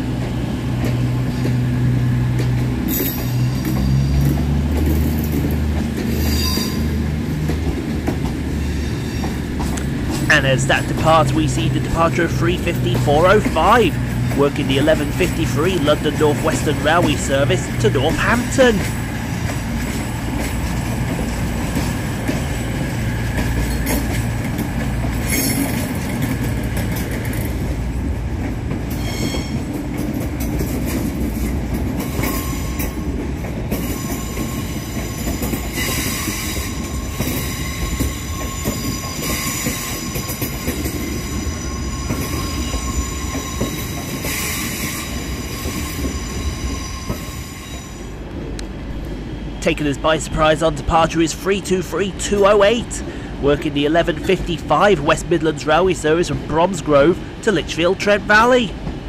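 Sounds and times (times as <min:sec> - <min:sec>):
train running gear rumble: 0:00.0 - 0:59.0
wheels clicking over rail joints: 0:00.2 - 0:41.3
wheel squeal: 0:06.1 - 0:07.0, 0:08.5 - 0:09.6, 0:25.2 - 0:26.0, 0:28.9 - 0:29.7, 0:32.0 - 0:33.0, 0:33.8 - 0:48.1.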